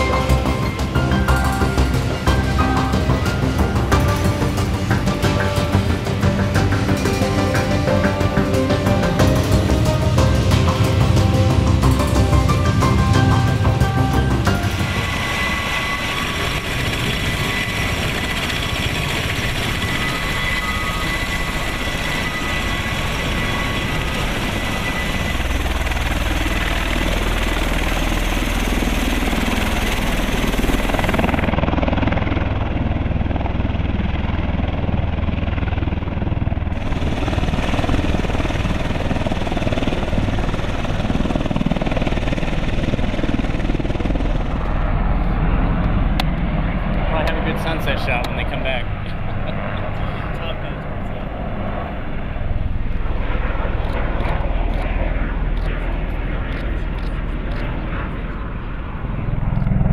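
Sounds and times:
aircraft engines heavy drone: 0.0 - 59.9
thin high whine: 6.6 - 26.4.

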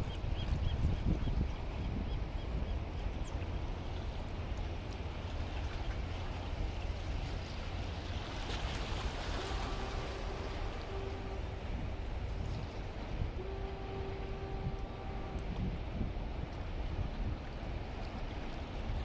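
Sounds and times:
water noise: 0.0 - 19.0
wind rumble on microphone: 0.0 - 19.0
faint steady hum: 1.9 - 19.0.

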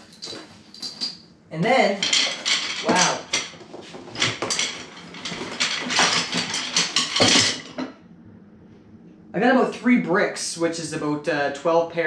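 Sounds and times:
wooden drumsticks clattering: 2.0 - 7.8.

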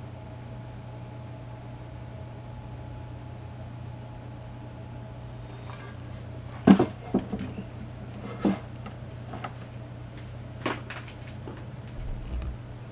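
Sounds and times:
steady low hum: 0.0 - 12.9
fan base knocking on wooden table: 6.6 - 7.6.

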